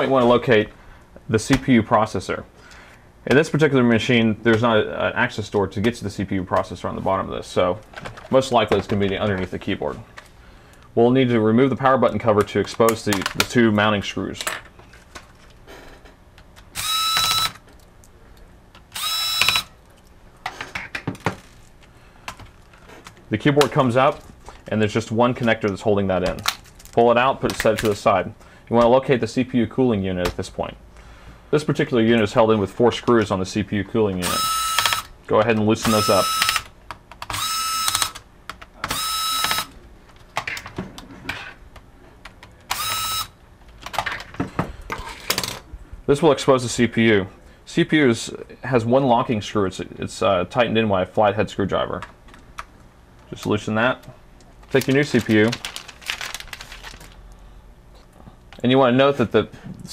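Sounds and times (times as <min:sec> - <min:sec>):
electric screwdriver whirring: 0:16.8 - 0:17.6, 0:18.9 - 0:19.7, 0:34.2 - 0:35.1, 0:37.2 - 0:38.2, 0:38.9 - 0:39.7, 0:42.7 - 0:43.3
tool and screws clicking: 0:18.9 - 0:19.7.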